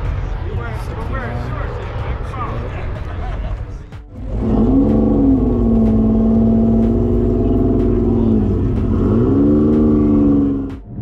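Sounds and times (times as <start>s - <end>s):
car engine accelerating: 3.7s - 11.0s.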